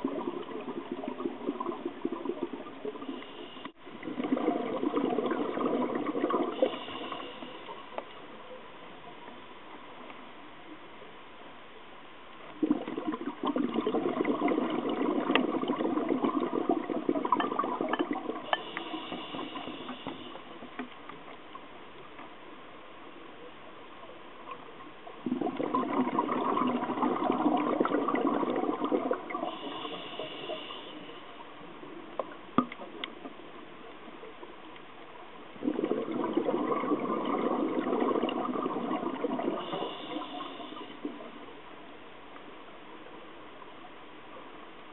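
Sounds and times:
diver exhaust bubbles gushing: 0:00.0 - 0:03.2, 0:03.9 - 0:06.8, 0:12.6 - 0:20.0, 0:25.2 - 0:30.0, 0:35.6 - 0:41.3
faint high hiss: 0:00.0 - 0:44.9.

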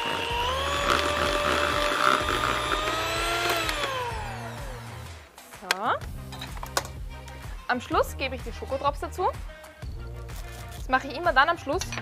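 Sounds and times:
electric hand mixer whine: 0:00.0 - 0:05.2.

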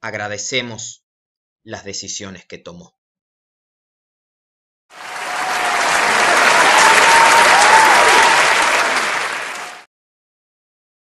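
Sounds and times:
crowd applauding: 0:04.9 - 0:09.9.

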